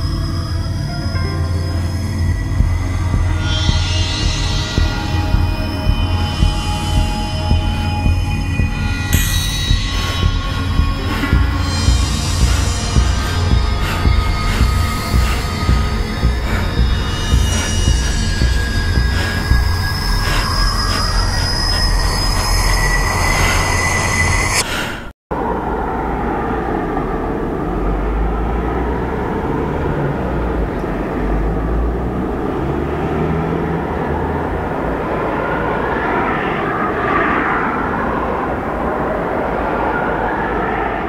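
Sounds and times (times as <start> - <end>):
low rumbling drone: 0.0 - 24.7
high eerie tones: 0.0 - 41.0.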